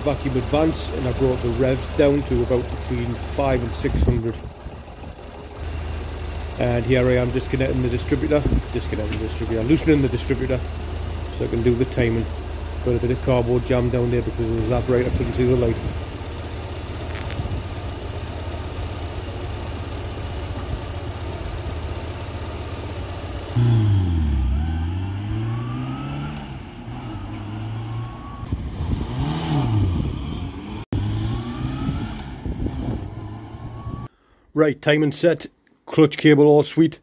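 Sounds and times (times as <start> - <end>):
car engine idling: 0.0 - 28.4
car pulling away through gears: 0.0 - 34.1.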